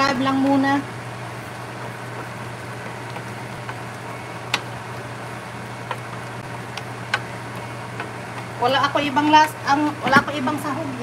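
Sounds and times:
spoon stirring food in skillet: 1.4 - 8.6.

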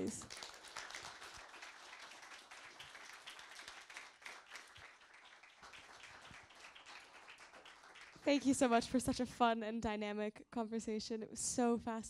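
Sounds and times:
faint audience applause: 0.0 - 8.6.

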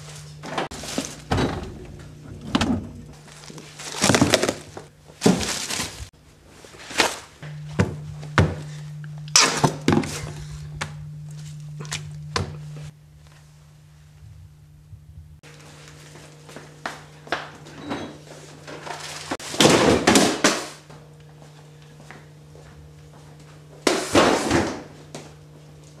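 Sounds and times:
rustling packaging and paper: 0.0 - 1.3, 3.2 - 6.1
low steady hum: 0.0 - 20.2
refrigerator door: 0.4 - 3.0.

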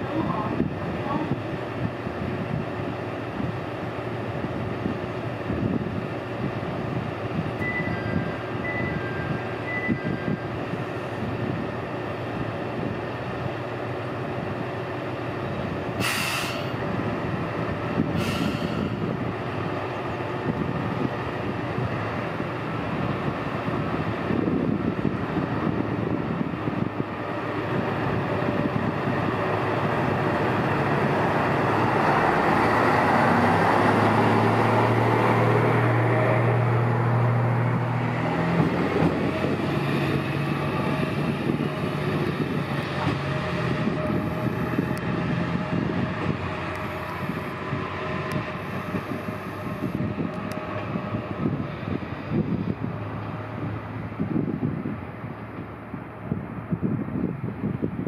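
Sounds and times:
diesel railcar engine: 0.0 - 58.0
air hissing: 16.0 - 16.8.

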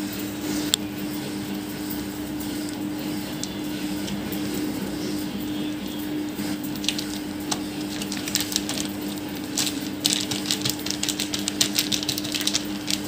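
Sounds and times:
steady low hum: 0.0 - 13.0
plastic sheet crinkling: 6.4 - 13.0
hands patting dough: 6.5 - 13.0.

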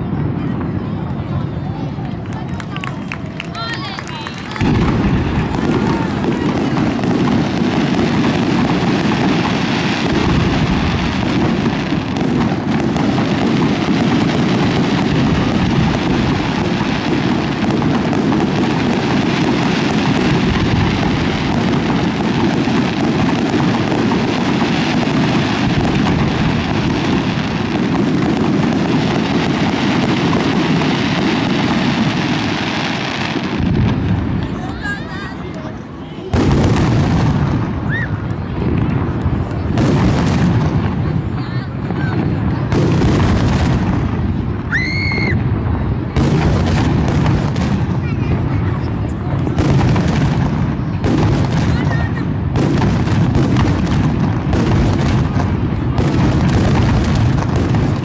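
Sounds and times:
fireworks bursting and crackling: 0.0 - 58.0.

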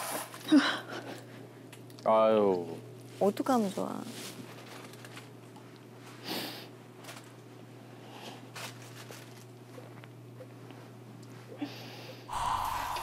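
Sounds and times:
woman sniffling: 6.2 - 6.7, 11.6 - 13.0.

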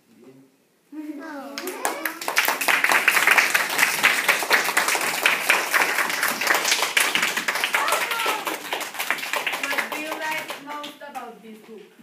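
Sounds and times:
children applauding: 1.6 - 10.7.

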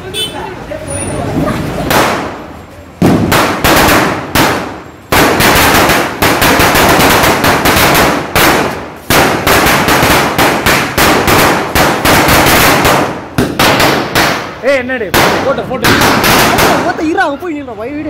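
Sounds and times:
firecracker string banging: 1.3 - 17.2.

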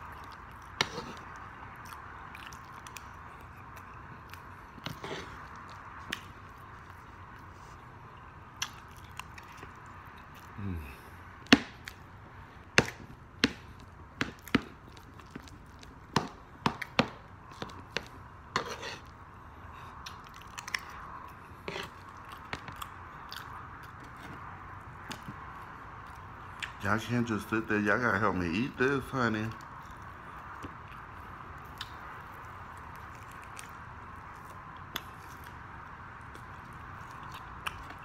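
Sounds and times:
chewing clicks and smacks: 0.0 - 7.5, 8.1 - 10.6, 11.7 - 12.1, 13.7 - 16.1, 20.0 - 26.8, 29.5 - 38.0.

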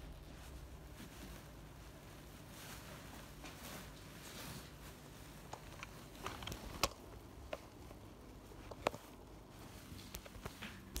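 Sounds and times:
clothing rustling: 0.0 - 11.0
light clicks and taps: 8.6 - 9.2.

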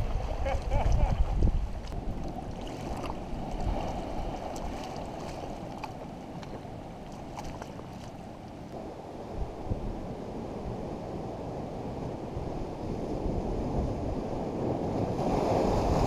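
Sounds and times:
seawater lapping over rocks: 0.0 - 8.9
wind noise on microphone: 0.0 - 16.0.

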